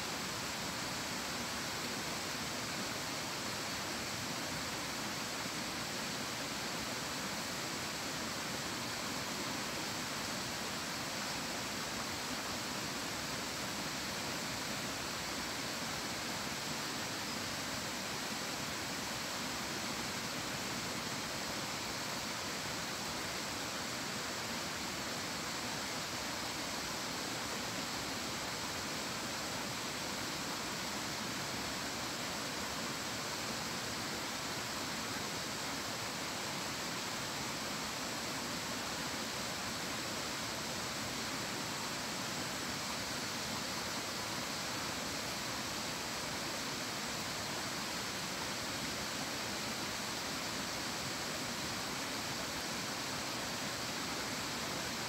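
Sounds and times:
stream rushing: 0.0s - 55.0s.

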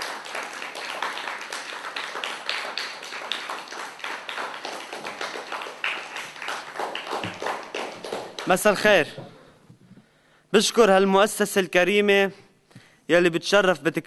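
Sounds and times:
audience applause: 0.0s - 8.8s.

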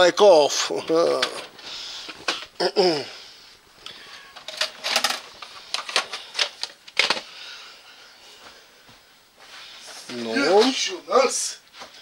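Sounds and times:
plastic cassette cases clacking: 4.4s - 7.3s.

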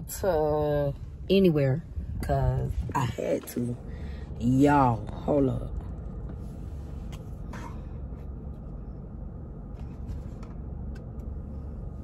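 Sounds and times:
low hum in car cabin: 0.0s - 12.0s
faint clicks and rustles: 9.6s - 11.4s.

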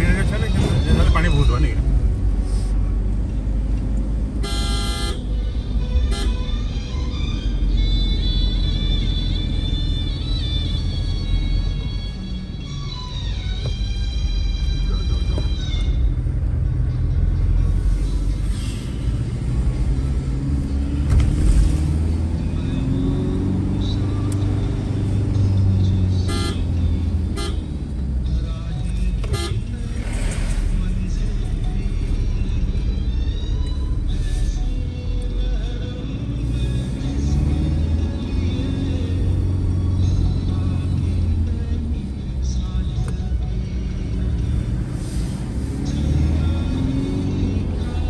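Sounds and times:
car engine and road noise: 0.0s - 48.0s
car horn: 4.4s - 6.5s, 26.1s - 27.7s, 29.2s - 29.8s.

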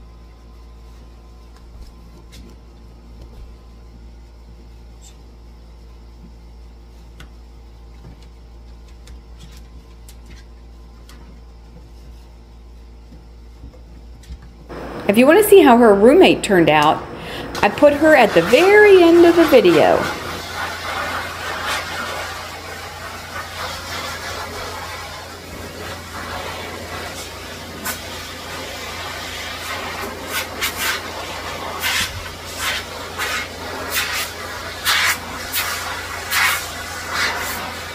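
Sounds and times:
low electrical hum: 0.0s - 37.9s
blow dryer running: 14.7s - 37.9s.

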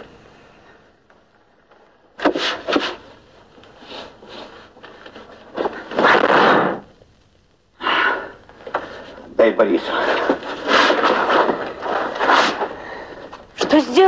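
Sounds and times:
rasping scrape: 9.9s - 12.7s.

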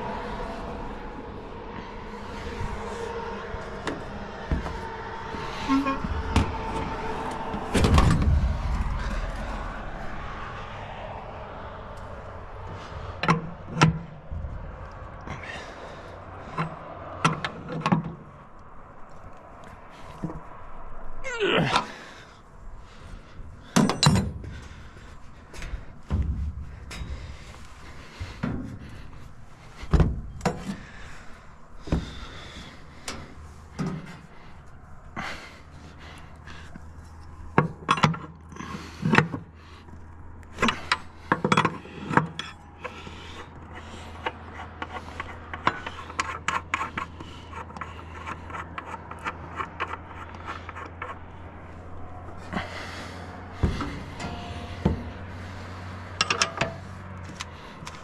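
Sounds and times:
tool scraping metal: 3.8s - 9.4s, 40.6s - 52.1s, 53.6s - 57.8s.

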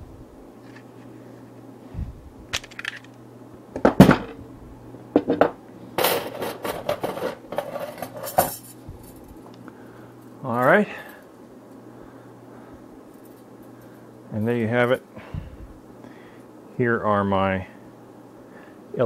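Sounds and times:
metal clinking and clattering: 6.0s - 9.4s.

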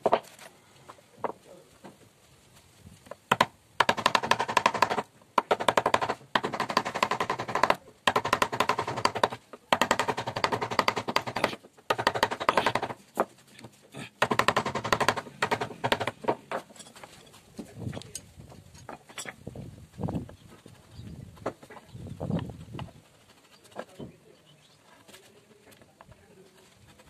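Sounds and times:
mallet tapping wood chisel: 3.3s - 13.0s, 14.2s - 16.6s.

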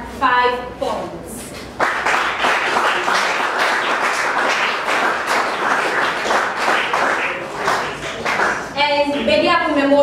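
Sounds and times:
audience applauding: 1.8s - 8.8s.

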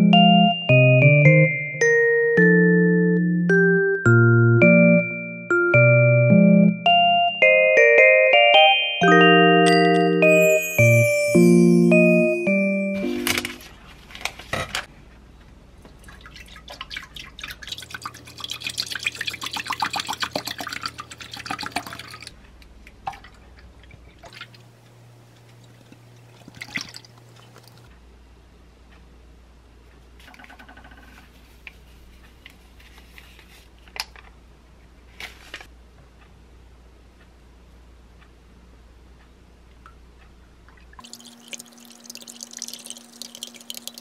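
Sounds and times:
milk glugging and splashing: 15.9s - 22.3s, 23.0s - 24.6s, 25.6s - 27.9s, 40.7s - 44.0s.

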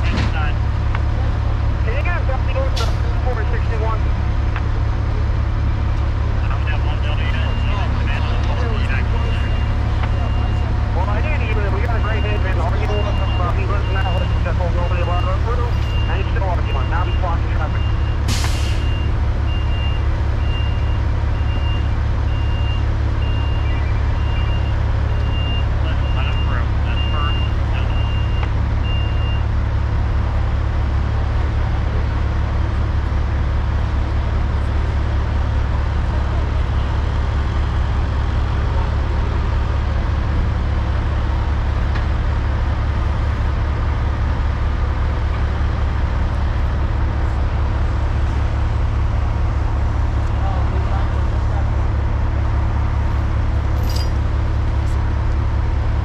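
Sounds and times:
diesel engine rumble: 0.0s - 56.0s
reversing alarm beeping: 6.6s - 29.5s.

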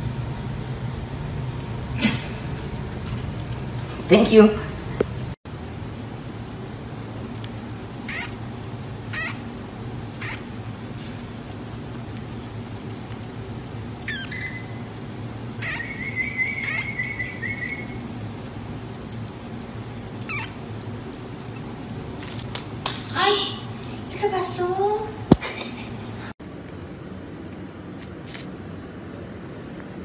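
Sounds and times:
low steady hum: 0.0s - 30.0s
marmoset chirping: 7.2s - 8.4s, 9.0s - 10.6s, 12.3s - 13.0s, 14.0s - 14.9s, 15.5s - 18.0s, 19.0s - 19.2s, 20.1s - 20.6s
marmoset long call: 8.0s - 8.4s, 9.0s - 9.4s, 10.1s - 10.5s, 14.0s - 14.8s, 15.6s - 18.0s, 20.2s - 20.6s.

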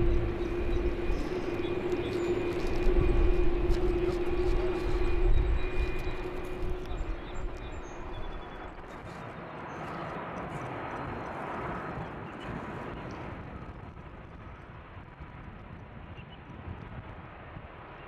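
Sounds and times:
jet airliner passing overhead: 0.0s - 18.0s.

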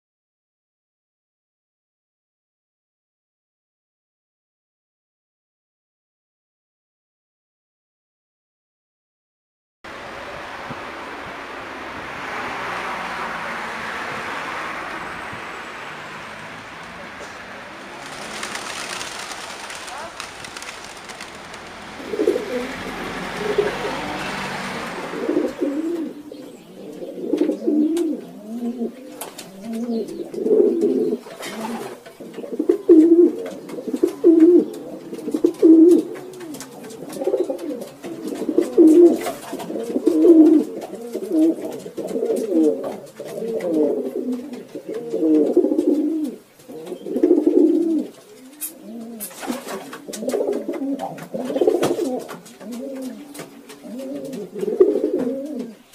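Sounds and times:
steady hiss: 14.4s - 24.2s
pigeons cooing: 15.6s - 55.9s.

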